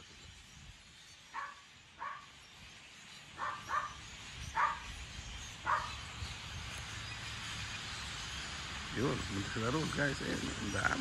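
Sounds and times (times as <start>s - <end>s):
animal calling: 3.3s - 4.9s, 5.6s - 6.1s.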